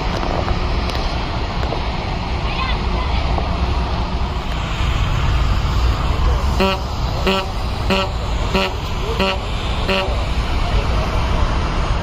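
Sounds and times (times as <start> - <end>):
distant jet engines rumbling: 0.0 - 12.0
short horn beeps: 6.6 - 10.2.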